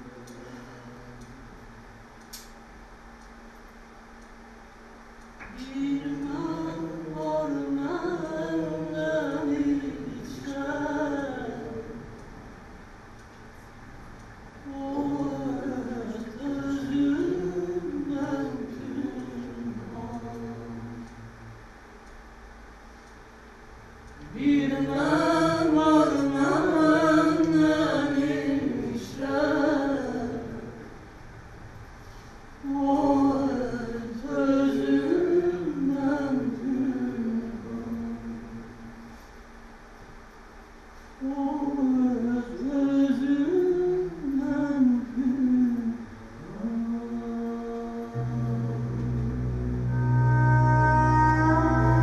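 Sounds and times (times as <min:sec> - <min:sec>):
low steady hum: 0:00.0 - 0:52.0
person singing slowly: 0:05.4 - 0:12.0, 0:14.6 - 0:21.3, 0:24.2 - 0:30.8, 0:32.6 - 0:39.0, 0:41.2 - 0:52.0.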